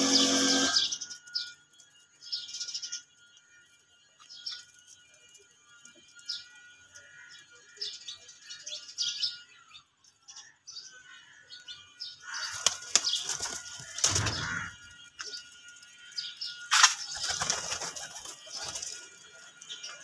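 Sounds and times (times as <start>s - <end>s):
pigeon wings flapping: 16.8s - 19.0s.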